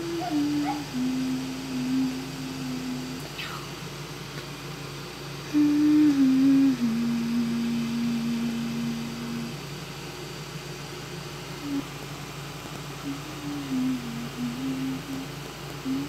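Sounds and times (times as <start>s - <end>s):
person humming a lullaby: 0.0s - 3.8s, 5.4s - 9.7s, 11.6s - 12.0s, 13.0s - 16.0s
low background hum: 0.0s - 16.0s.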